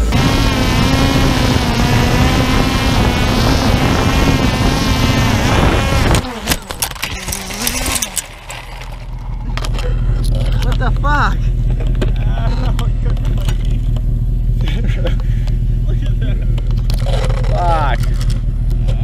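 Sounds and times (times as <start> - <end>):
drone propellers whining: 0.0 - 10.7.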